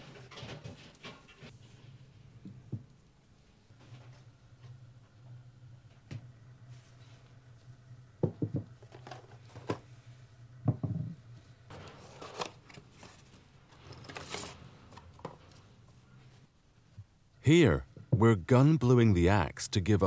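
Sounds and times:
knocks on wooden workbench: 8.2 - 8.7, 10.7 - 11.2
paper rustling and crinkling: 11.7 - 15.6.

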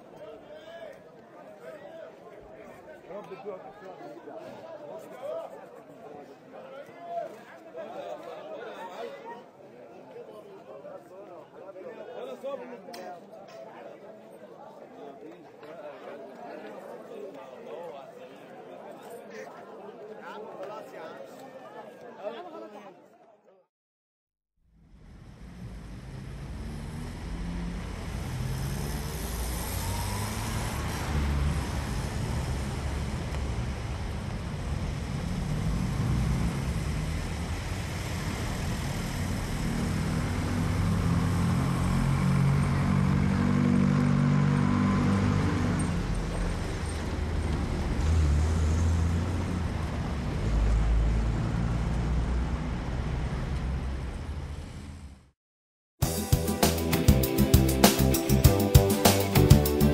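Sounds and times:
passing cars: 24.8 - 55.3.

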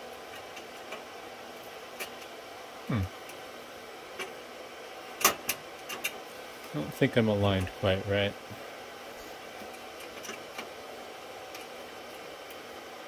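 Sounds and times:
server cooling fans whirring: 0.0 - 13.0
clicks of metal rack hardware: 5.2 - 6.2.

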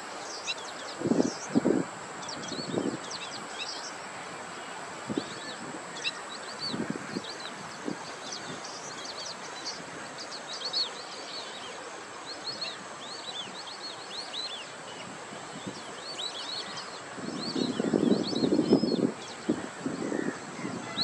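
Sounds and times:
outdoor background hiss: 0.0 - 21.0.

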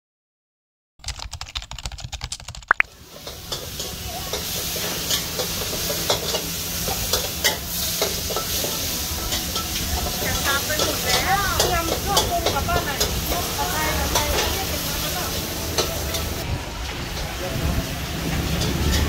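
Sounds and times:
keyboard typing clicks: 1.0 - 2.8
wok sizzling: 2.8 - 19.0.

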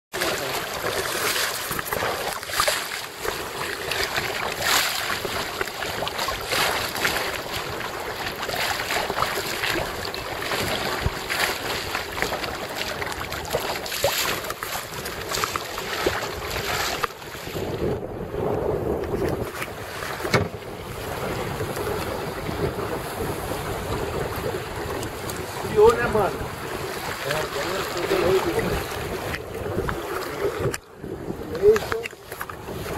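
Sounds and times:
water washing against hull: 0.1 - 32.9
wind rushing over microphone: 14.4 - 32.9.

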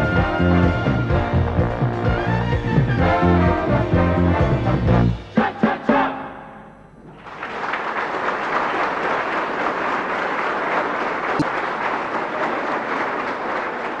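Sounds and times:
audience applauding: 7.1 - 14.0.

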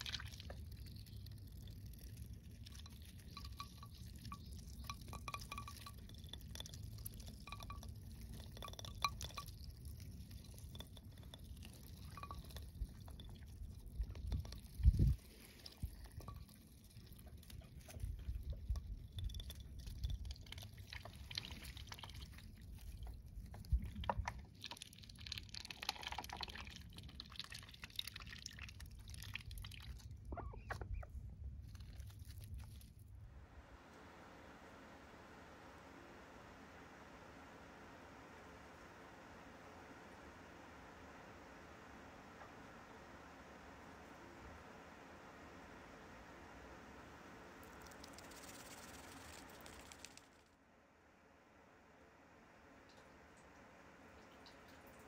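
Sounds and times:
ducks nibbling food: 0.0 - 33.2, 47.6 - 50.4
high tinkling tones: 3.2 - 9.6, 10.4 - 13.4.

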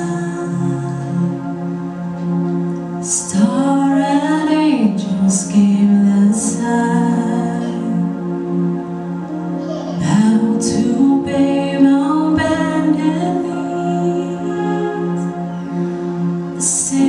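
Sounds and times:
woman singing: 0.0 - 1.5, 3.0 - 8.4, 10.0 - 15.8, 16.6 - 17.0
keyboard chords: 0.0 - 17.0.

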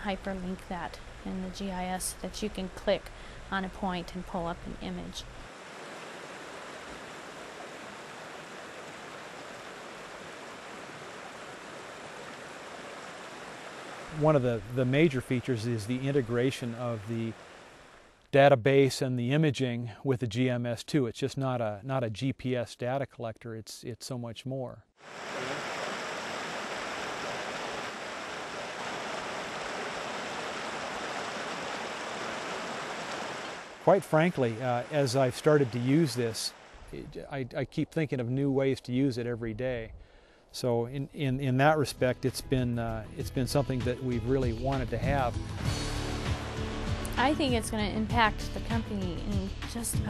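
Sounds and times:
creek water rushing: 5.3 - 18.2, 25.0 - 37.2.

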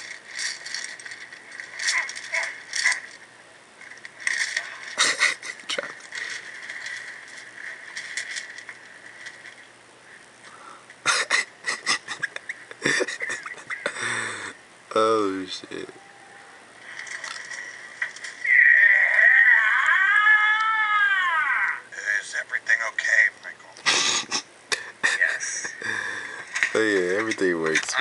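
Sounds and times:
metal chains rattling: 0.0 - 3.2
steady thin hiss: 0.0 - 13.8.

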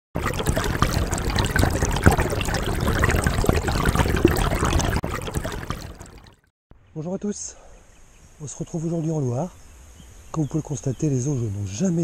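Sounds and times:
water trickling and splashing: 0.2 - 6.5.

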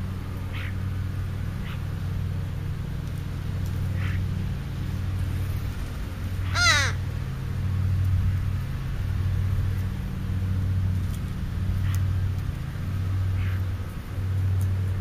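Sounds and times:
low steady hum: 0.0 - 15.0
crow cawing: 6.4 - 7.0.

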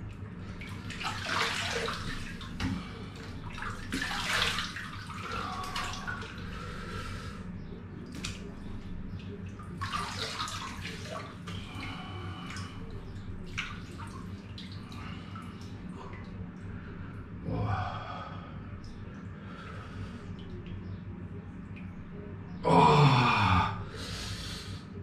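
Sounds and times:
steady low hum: 0.0 - 25.0
water splashing and dripping: 0.4 - 6.7, 8.0 - 16.4.

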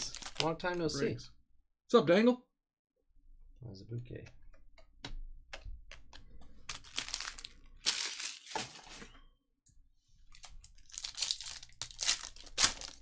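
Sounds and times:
foil wrapper crinkling and tearing: 0.0 - 0.8, 6.6 - 9.0, 10.3 - 13.0.

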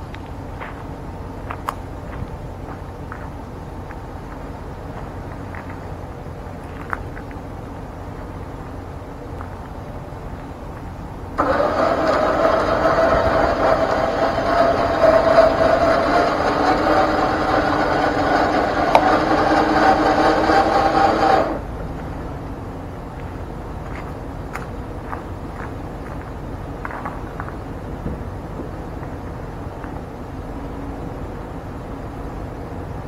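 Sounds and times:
electric winch motor whine: 11.4 - 21.7.

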